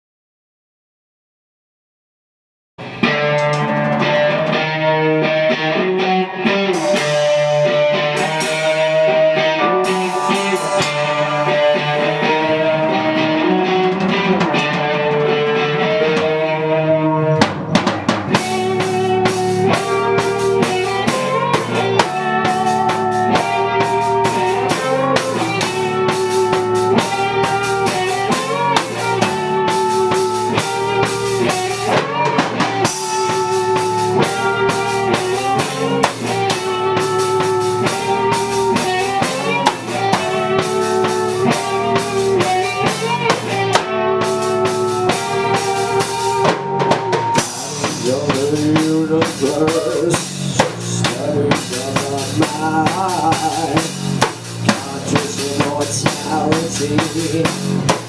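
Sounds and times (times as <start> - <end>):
rock band playing: 2.8 - 58.0.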